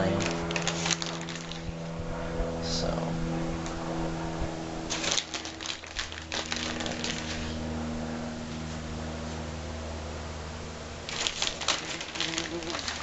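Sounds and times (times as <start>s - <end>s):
plastic bag crinkling: 0.0s - 1.8s, 4.9s - 7.6s, 11.1s - 13.0s
airplane drone overhead: 0.0s - 13.0s.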